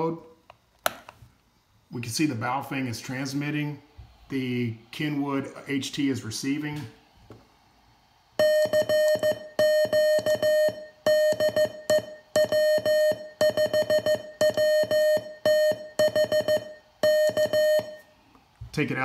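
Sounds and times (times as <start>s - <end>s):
morse code beeps: 8.4s - 18.1s.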